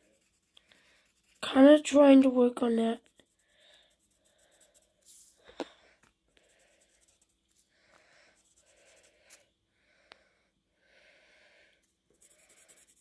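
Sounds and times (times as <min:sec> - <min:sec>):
pencil scratching on paper: 0:00.0 - 0:05.4, 0:06.4 - 0:07.7, 0:08.4 - 0:09.4, 0:12.1 - 0:13.0.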